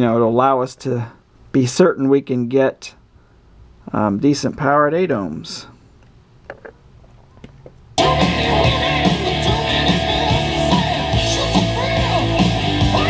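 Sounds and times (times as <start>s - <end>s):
guitar music: 8.0s - 13.0s.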